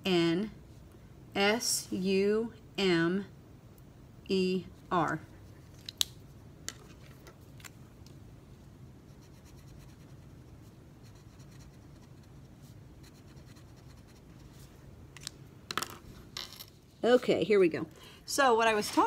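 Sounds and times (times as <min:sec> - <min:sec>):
marker scratching on paper: 0:09.1 - 0:14.7.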